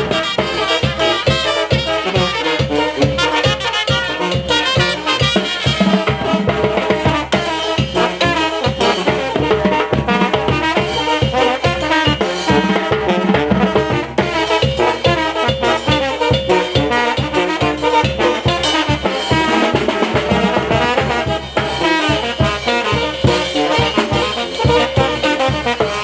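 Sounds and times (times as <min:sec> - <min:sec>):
cymbals: 0:00.0 - 0:26.0
snare drums: 0:00.0 - 0:26.0
trombones and trumpet playing tune: 0:00.0 - 0:26.0
tuba: 0:00.0 - 0:26.0
bass drum beat: 0:05.2 - 0:26.0.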